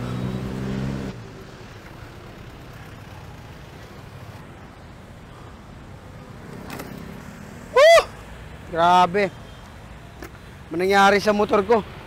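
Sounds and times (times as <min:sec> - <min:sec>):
vehicle engine drone: 0:00.0 - 0:08.5.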